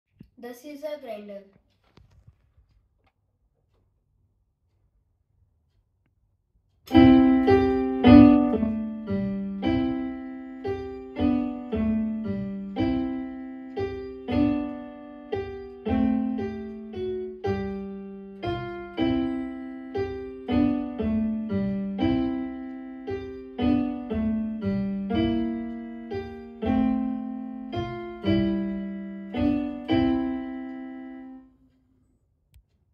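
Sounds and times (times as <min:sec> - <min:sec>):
electronic keyboard piano notes: 0:06.9 - 0:31.5.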